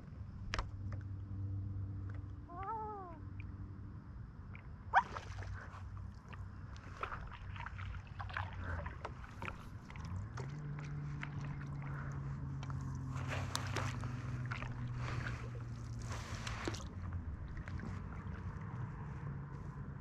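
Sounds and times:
light clicks and small splashes: 0.0 - 3.7, 4.4 - 20.0
steady low hum: 0.0 - 20.0
paddle strokes in water: 4.9 - 20.0
water dripping off paddle: 6.2 - 18.5.

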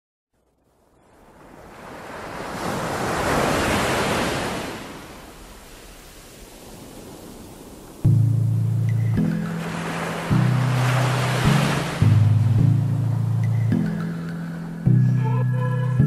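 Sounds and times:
ocean waves washing in: 0.4 - 15.0
music with low notes: 8.1 - 16.0.

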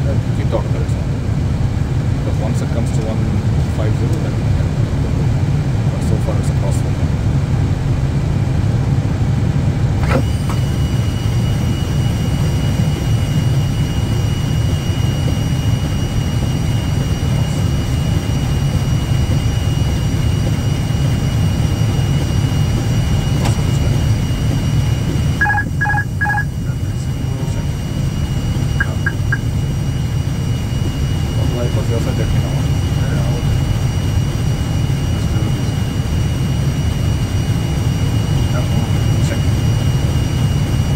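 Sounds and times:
aircraft cockpit engine noise: 0.0 - 40.9
steady high tone: 10.3 - 36.8
short beeps: 25.4 - 26.5, 28.6 - 29.6.

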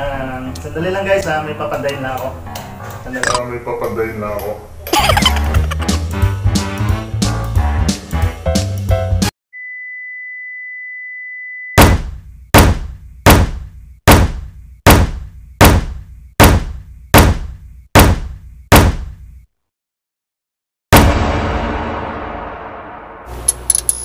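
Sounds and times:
music: 0.0 - 3.2, 5.0 - 9.3, 21.0 - 23.5.

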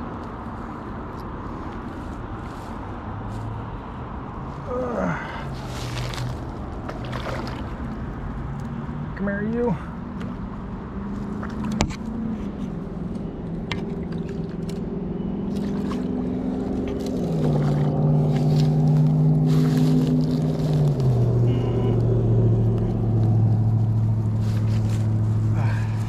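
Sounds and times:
rustling: 5.5 - 7.5, 16.4 - 26.0
engine running: 11.0 - 26.0.

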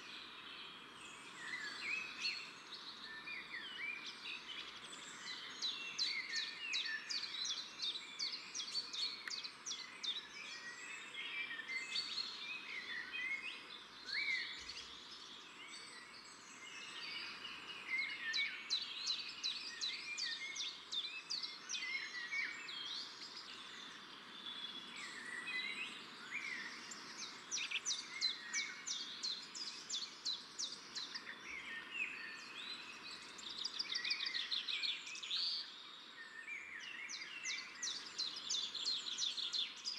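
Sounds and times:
small birds chirping: 0.0 - 39.9.

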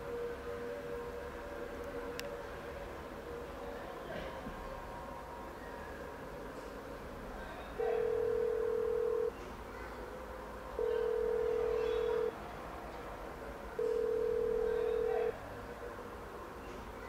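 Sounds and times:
telephone ringback tone: 8.0 - 9.3, 10.8 - 12.3, 13.8 - 15.3.

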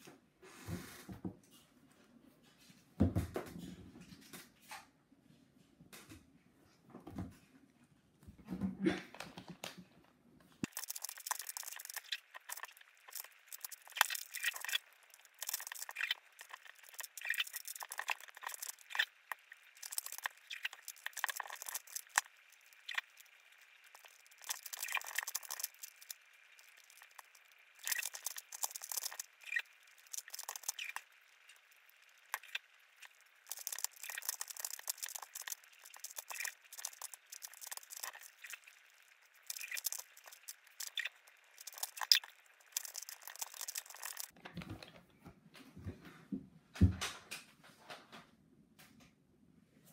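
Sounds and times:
puzzle cube clicking and scraping: 10.6 - 31.6, 32.2 - 38.8, 39.4 - 44.4.

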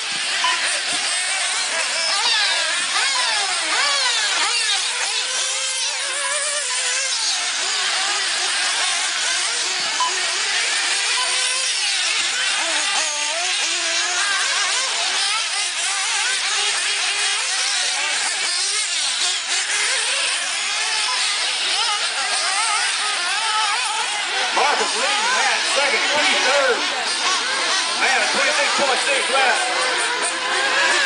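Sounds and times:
small engines screaming: 0.0 - 31.0.

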